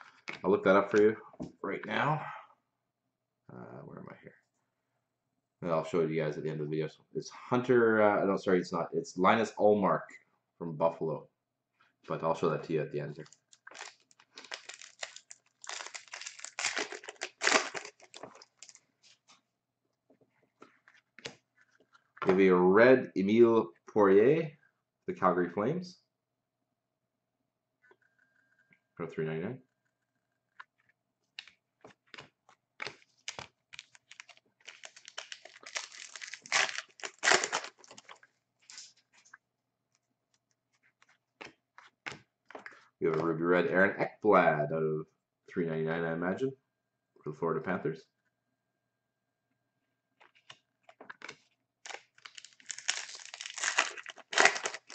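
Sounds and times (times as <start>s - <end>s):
foil wrapper tearing and crinkling: 13.2s - 18.8s, 32.8s - 38.9s, 51.2s - 54.9s.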